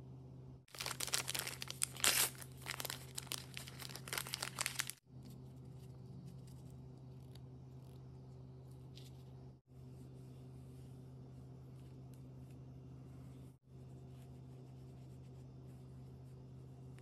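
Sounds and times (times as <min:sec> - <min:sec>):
plastic wrapper crinkling and tearing: 0:00.7 - 0:05.0.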